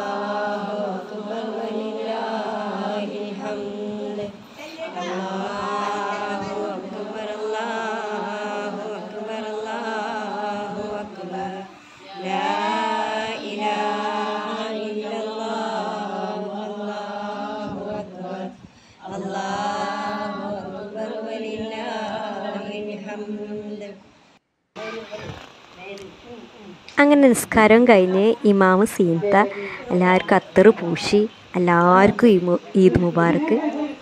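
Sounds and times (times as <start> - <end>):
melodic chanting: 0.0 - 24.2.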